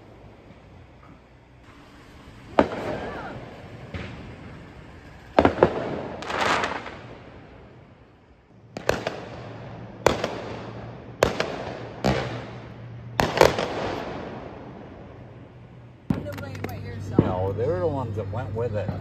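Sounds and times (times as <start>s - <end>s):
fireworks crackling: 0.0s - 19.0s
fireworks bangs echoing: 1.8s - 15.4s.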